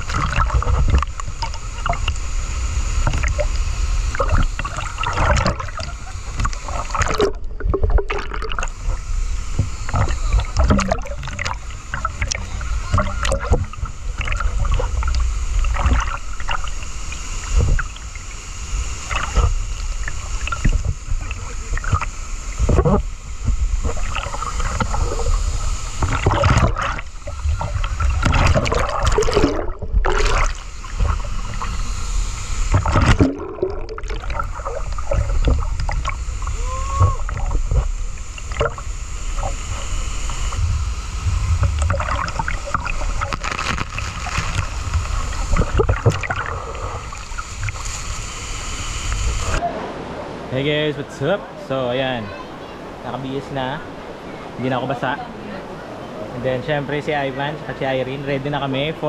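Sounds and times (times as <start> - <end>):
river water rushing and splashing: 0.0 - 59.0
heavy low rumble: 18.7 - 50.0.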